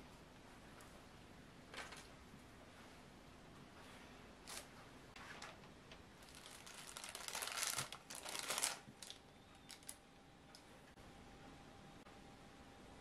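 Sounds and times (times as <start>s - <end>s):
baking paper rustling: 6.2s - 10.0s.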